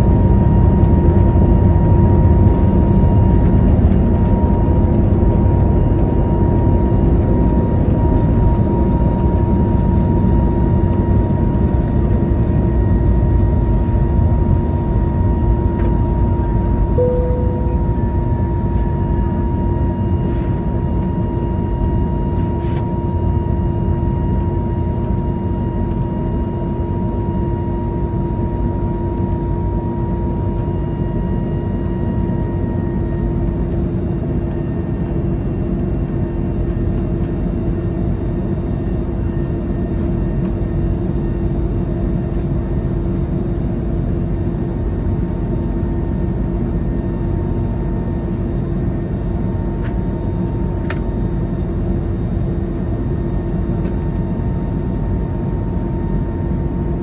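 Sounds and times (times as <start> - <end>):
jet engine noise in cabin: 0.0 - 57.0.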